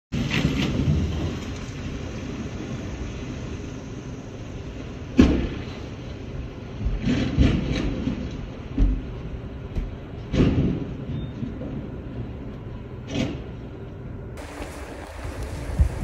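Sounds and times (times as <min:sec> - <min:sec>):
low rumble: 0:14.4 - 0:16.0.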